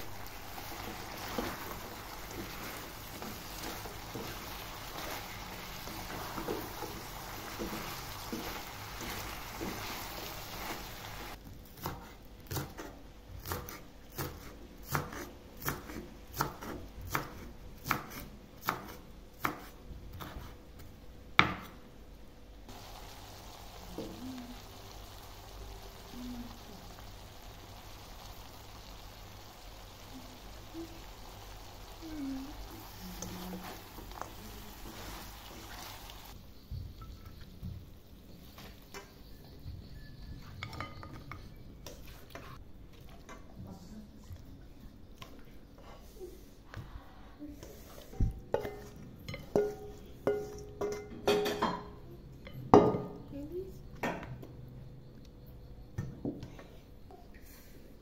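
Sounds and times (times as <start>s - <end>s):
food sizzling in a wok: 0.0s - 12.7s, 22.7s - 39.3s
knife chopping on wooden board: 11.8s - 20.5s.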